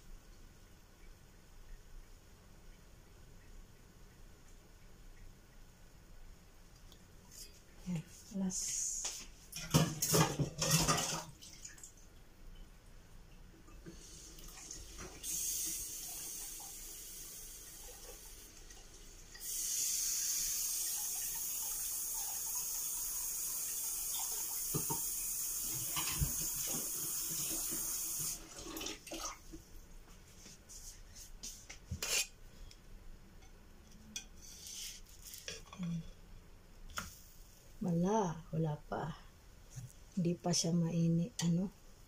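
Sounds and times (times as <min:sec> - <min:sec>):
dishes and utensils clinking: 0:09.6 - 0:11.3
tap running into sink: 0:24.6 - 0:28.9.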